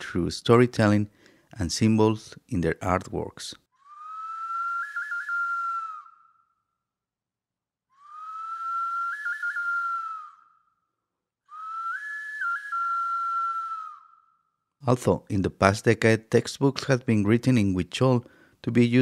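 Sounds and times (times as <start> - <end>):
breathy flute long notes: 3.8 - 6.8, 7.9 - 14.7.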